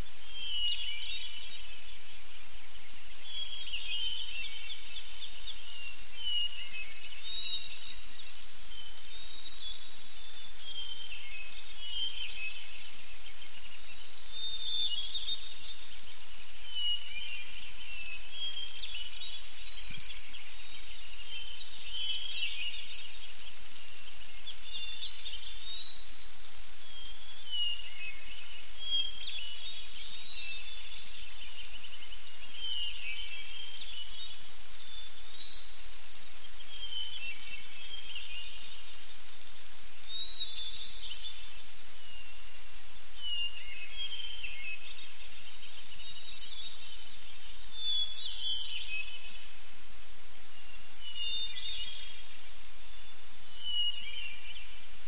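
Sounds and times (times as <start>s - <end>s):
small birds chirping: 0.0s - 49.8s
steady high hiss: 0.0s - 55.0s
bird singing high repeated notes: 18.8s - 20.5s.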